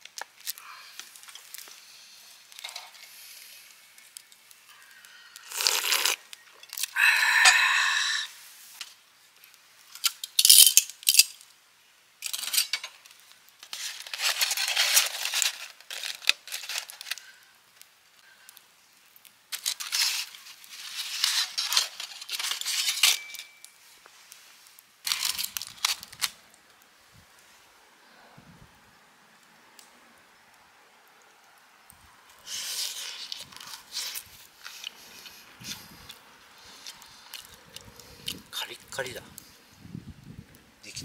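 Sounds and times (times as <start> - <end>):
foil crinkling and rustling: 0.0 - 6.9, 12.2 - 17.4, 19.5 - 26.4, 32.4 - 35.3.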